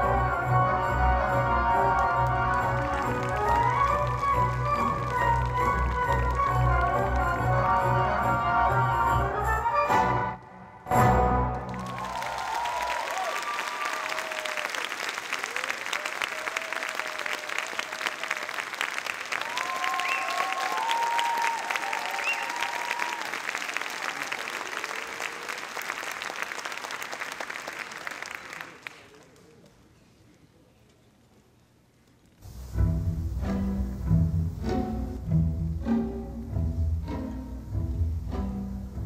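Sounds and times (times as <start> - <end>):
audience applauding: 1.8 - 8.0, 11.5 - 29.8
voices cheering: 11.8 - 18.6, 19.3 - 25.8.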